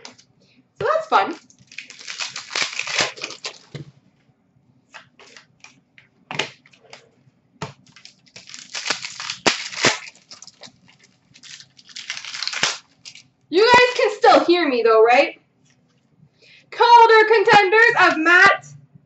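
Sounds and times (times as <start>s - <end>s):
card pack wrappers tearing: 1.4s - 3.8s, 7.8s - 14.2s.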